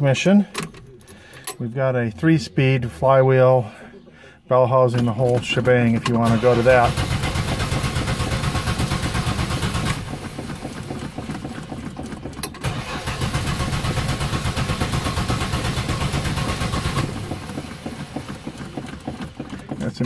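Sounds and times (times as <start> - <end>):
starter cranking car engine: 5.2 - 20.0.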